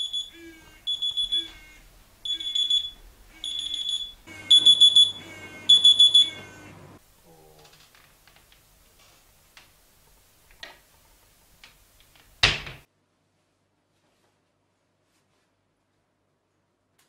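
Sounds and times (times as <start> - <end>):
phone alarm beeping: 0.0 - 7.0.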